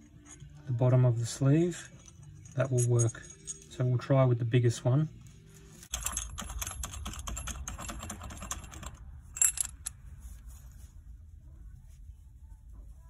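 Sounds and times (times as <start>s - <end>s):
metal parts clicking and rattling: 1.8s - 3.8s, 5.8s - 10.0s.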